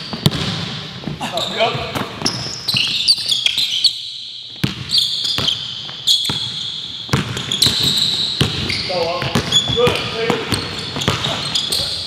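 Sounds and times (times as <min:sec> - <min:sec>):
sneaker squeaks: 0:00.0 - 0:12.0
basketball dribbling on wood floor: 0:07.1 - 0:11.4.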